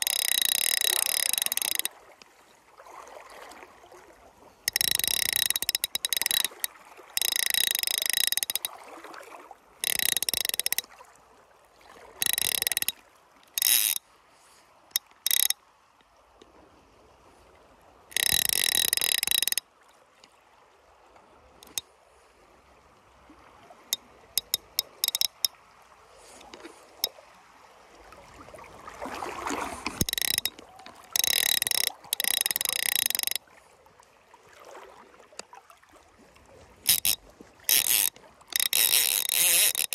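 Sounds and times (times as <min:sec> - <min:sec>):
fly reel drag buzzing: 0:00.0 - 0:01.9, 0:04.7 - 0:08.7, 0:09.8 - 0:10.9, 0:12.2 - 0:14.0, 0:14.9 - 0:15.6, 0:18.1 - 0:19.6, 0:24.4 - 0:25.5, 0:29.8 - 0:33.4, 0:36.8 - 0:39.9.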